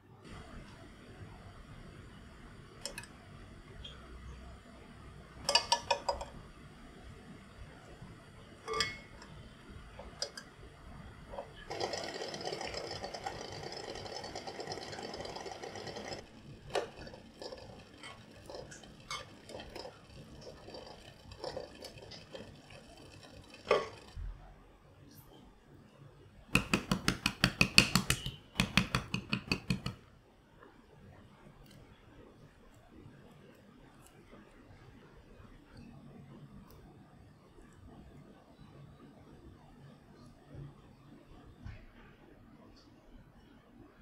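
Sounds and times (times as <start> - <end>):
pot boiling on gas burner: 0.0 - 25.0, 25.7 - 31.6
tongs tapping against glass: 8.7 - 9.1
eggs clinking against glass pot: 8.7 - 9.3.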